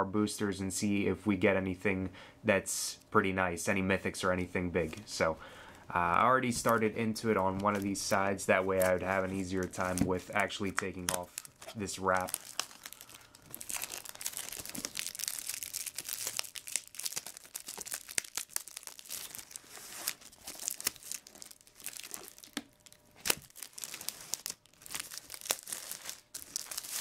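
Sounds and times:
plastic shrink wrap crinkling: 0:06.5 - 0:27.0.

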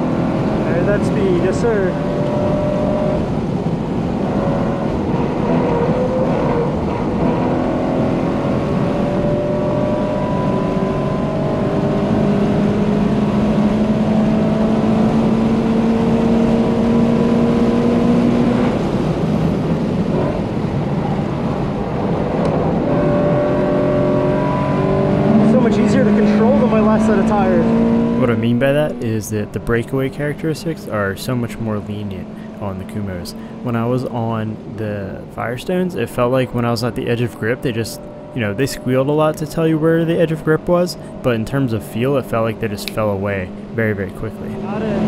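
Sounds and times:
car engine at high revs: 0:00.0 - 0:45.0.

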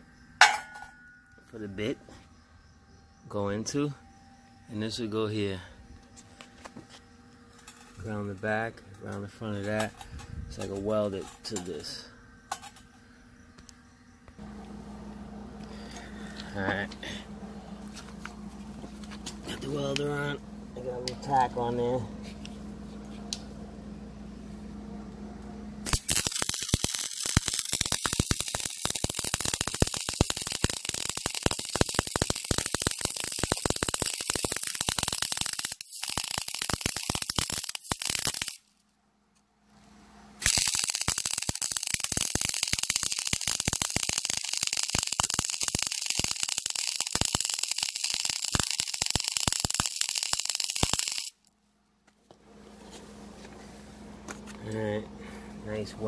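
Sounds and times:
low steady hum: 0:00.0 - 0:29.1, 0:37.2 - 0:42.2, 0:51.3 - 0:56.0
mig welder crackling: 0:25.8 - 0:38.8, 0:40.4 - 0:51.5.

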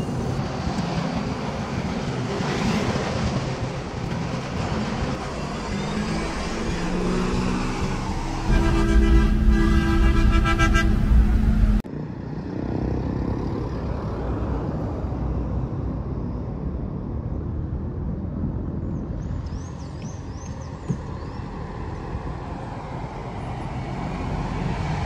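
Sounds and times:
road traffic rumble: 0:00.0 - 0:25.0
vehicle horn: 0:06.8 - 0:11.8.

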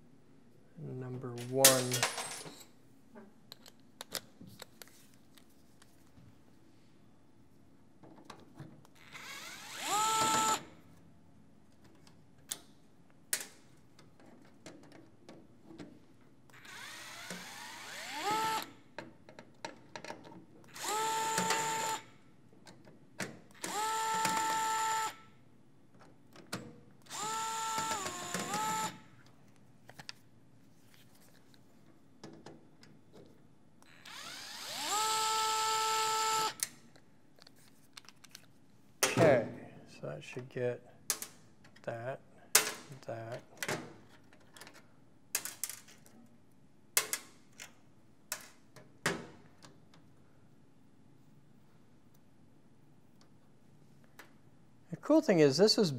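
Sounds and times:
electric screwdriver whining: 0:09.0 - 0:10.7, 0:16.5 - 0:18.7, 0:20.7 - 0:22.0, 0:23.6 - 0:25.2, 0:27.1 - 0:29.0, 0:33.8 - 0:36.6.

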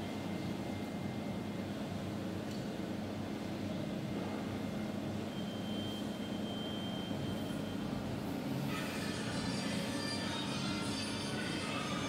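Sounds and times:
faint high whine: 0:04.1 - 0:12.0
music: 0:08.7 - 0:12.0.

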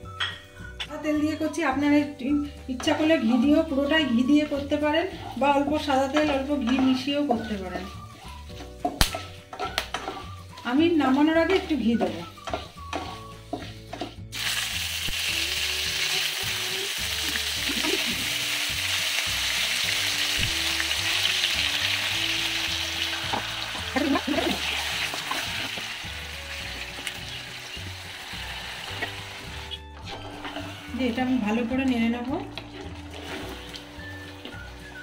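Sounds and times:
chicken sizzling in oil: 0:02.3 - 0:35.0
wooden spatula stirring: 0:02.7 - 0:14.3, 0:28.9 - 0:35.0.

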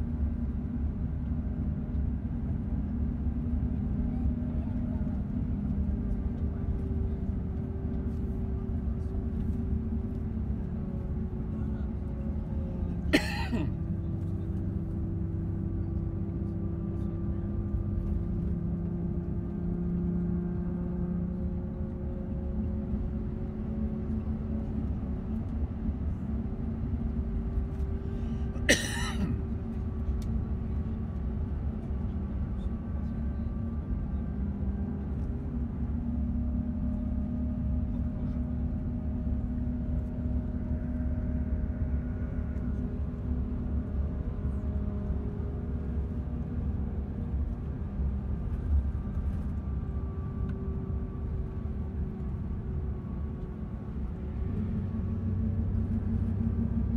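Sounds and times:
road rumble and engine hum: 0:00.0 - 0:56.9.

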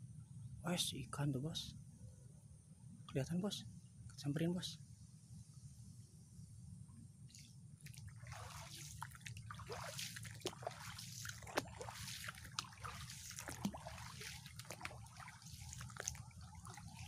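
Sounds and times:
low steady rumble: 0:00.0 - 0:17.0
stream water trickling: 0:07.3 - 0:17.0
water drips and plops: 0:07.9 - 0:17.0.

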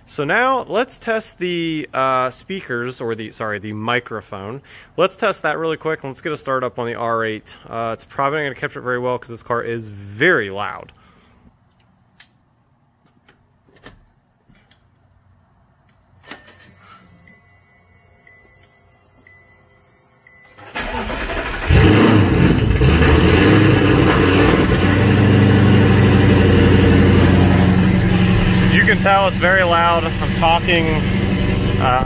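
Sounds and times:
faint repeating chime: 0:16.8 - 0:20.8
car engine starting and idling: 0:20.4 - 0:32.0.

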